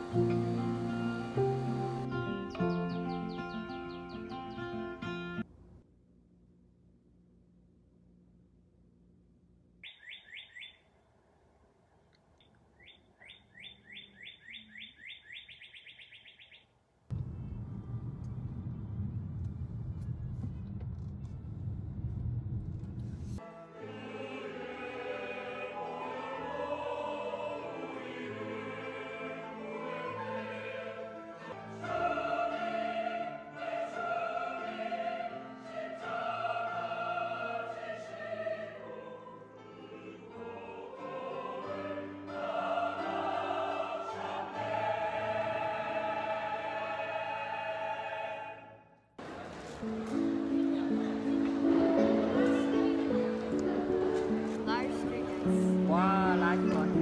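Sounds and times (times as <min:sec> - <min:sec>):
choir singing a hymn with instruments: 0:00.0 - 0:03.6, 0:23.4 - 0:48.8, 0:50.9 - 0:57.0
bird whistling song: 0:02.6 - 0:04.8, 0:09.8 - 0:10.9, 0:12.8 - 0:16.7
low rumble: 0:17.1 - 0:23.4.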